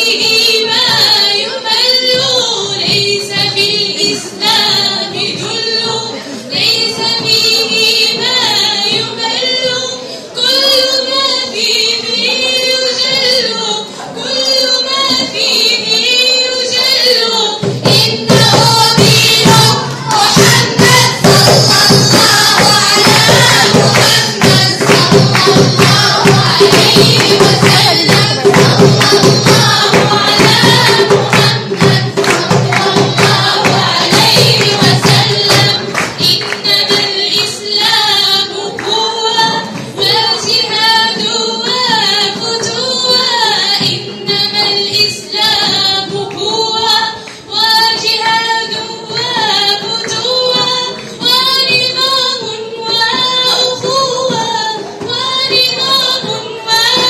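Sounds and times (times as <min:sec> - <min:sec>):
women singing together: 0:00.0 - 0:57.0
frame drum beating: 0:17.6 - 0:57.0.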